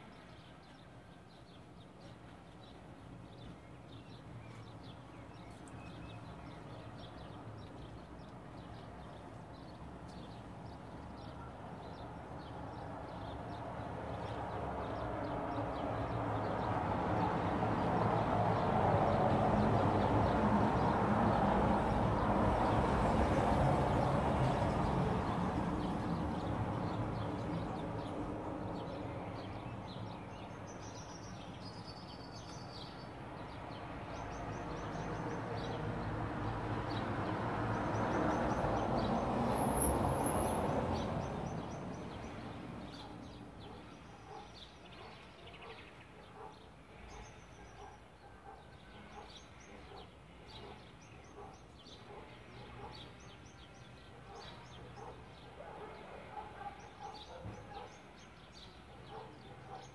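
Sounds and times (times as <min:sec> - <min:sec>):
small birds chirping: 0:00.0 - 0:36.1, 0:36.8 - 0:59.9
passing vehicle noise: 0:12.2 - 0:30.3, 0:33.2 - 0:43.6.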